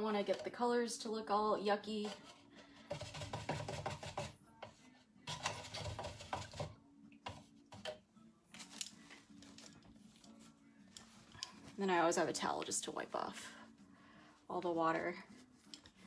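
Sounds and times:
paintbrushes clattering in water cup: 5.3 - 6.7.

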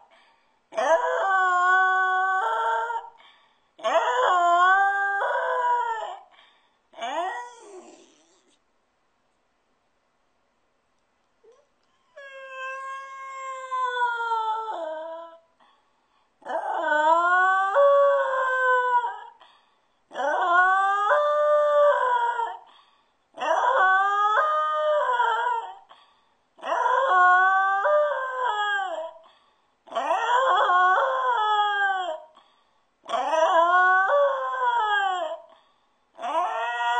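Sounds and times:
dog howling: 0.8 - 3.1, 3.8 - 6.2, 7.0 - 8.5, 11.5 - 15.4, 16.4 - 19.3, 20.1 - 22.6, 23.4 - 25.8, 26.6 - 29.2, 29.9 - 32.3, 33.1 - 35.5, 36.2 - 36.9.

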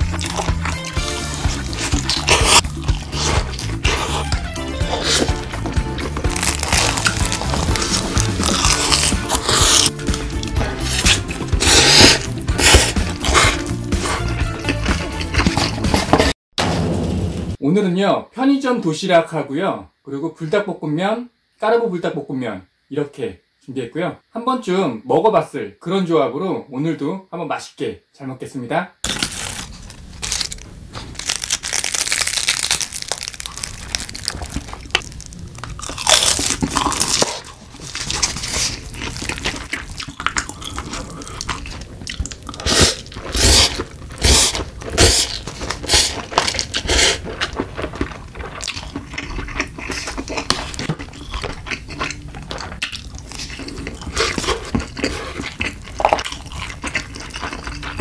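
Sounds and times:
crunchy chewing: 0.0 - 16.3, 29.0 - 58.0
slurping noodles: 0.0 - 16.3, 35.8 - 58.0.

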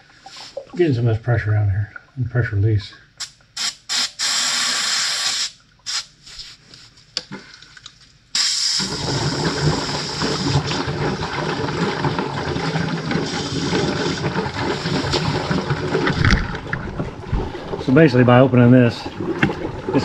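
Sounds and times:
air and fluid rushing from valve: 3.2 - 6.6, 8.3 - 17.9.

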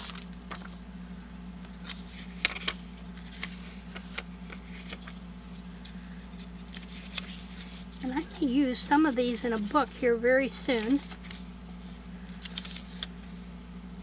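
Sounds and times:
postcards flipped and rustling: 0.0 - 13.7
steady low hum: 0.0 - 14.0
sharp paper snaps: 1.7 - 5.2.

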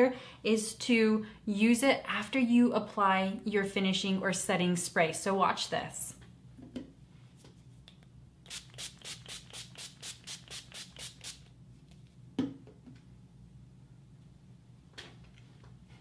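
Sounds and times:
spray pump hissing: 8.5 - 11.4.

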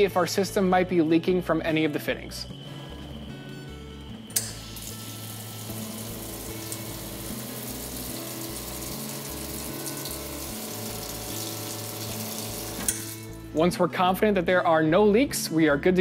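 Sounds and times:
water running from dispenser: 4.3 - 13.3.

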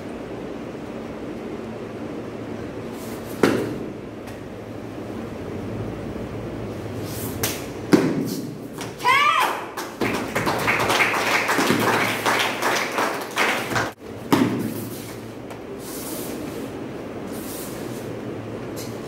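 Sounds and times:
room noise: 0.0 - 19.0
bare feet thudding on mat: 14.3 - 15.6.

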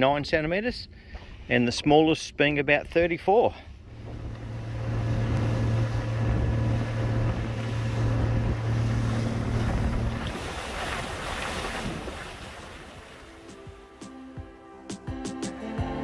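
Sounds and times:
wind on microphone: 3.8 - 13.2
boat engine droning: 3.8 - 14.0
rushing water: 4.1 - 14.0.

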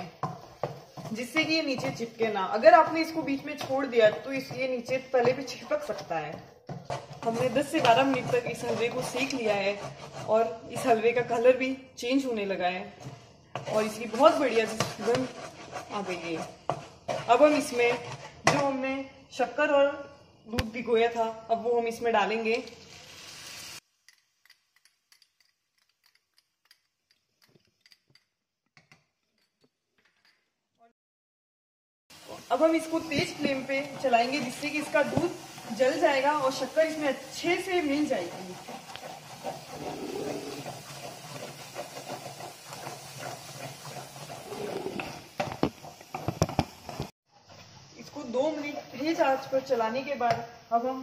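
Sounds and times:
wooden spatula scraping pan: 0.0 - 19.2, 32.2 - 47.2.

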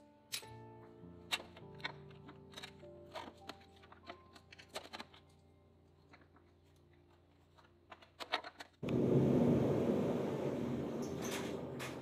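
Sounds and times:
heater blowing: 8.8 - 12.0.

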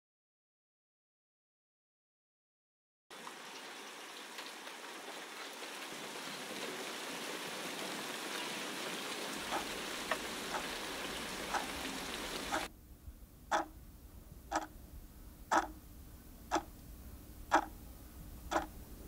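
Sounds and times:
steady rain falling: 3.1 - 13.9.

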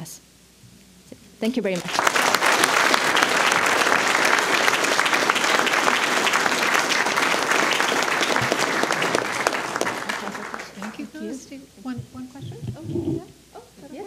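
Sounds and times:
audience applauding: 1.8 - 11.2.

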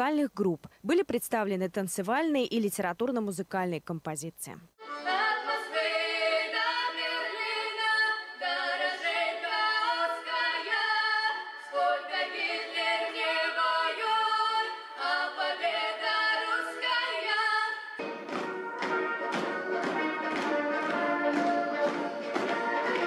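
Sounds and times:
women singing unaccompanied: 5.0 - 17.9.

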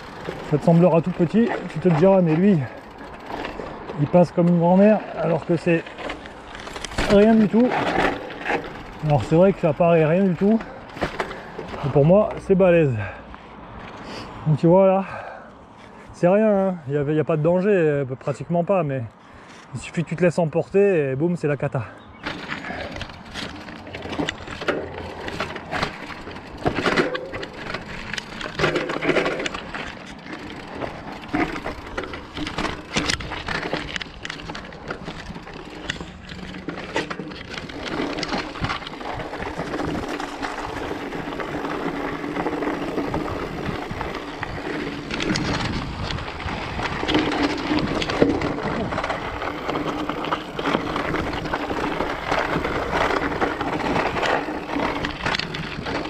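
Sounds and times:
bike knocking and rattling: 0.0 - 13.2, 21.8 - 56.0
bike tyres crunching over stones: 0.0 - 16.1, 21.8 - 56.0.

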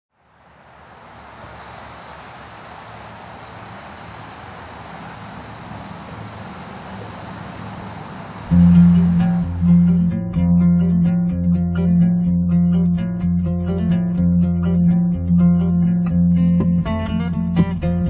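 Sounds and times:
crickets chirping: 0.1 - 10.1
low background hum: 0.2 - 10.4.

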